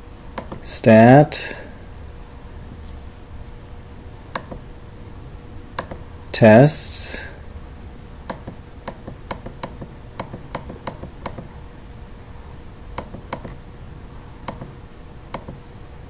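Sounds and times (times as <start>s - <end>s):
computer mouse clicking: 0.4s - 0.6s, 4.3s - 4.6s, 5.8s - 6.0s, 8.3s - 11.5s, 13.0s - 13.6s, 14.4s - 15.6s.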